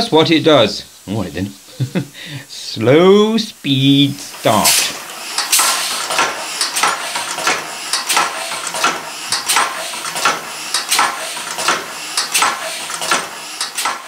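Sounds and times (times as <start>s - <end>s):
air hissing: 0.8s - 14.0s
engine metallic clacks: 4.3s - 14.0s.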